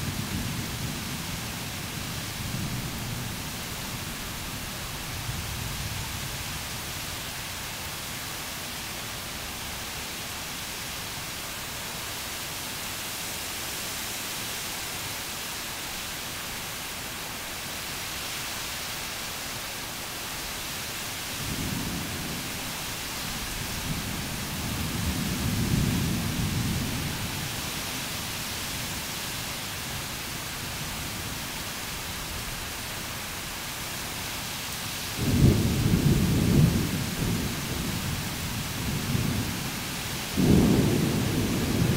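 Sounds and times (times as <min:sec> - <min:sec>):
heavy rain hissing: 0:00.0 - 0:41.9
thunder rolling: 0:35.2 - 0:38.1, 0:40.4 - 0:41.9.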